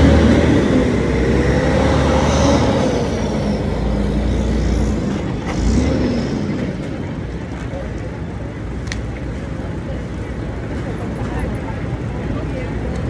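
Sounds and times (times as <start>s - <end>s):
vehicle passing: 0.0s - 7.4s
traffic engines rumbling: 0.0s - 13.0s.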